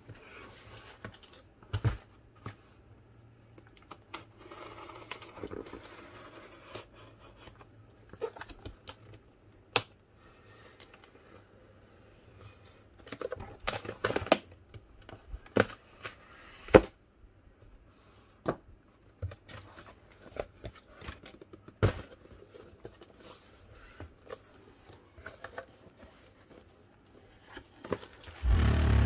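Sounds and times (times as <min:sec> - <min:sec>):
cardboard rustling and scraping: 0:00.0 - 0:02.9, 0:04.2 - 0:08.8, 0:19.0 - 0:29.0.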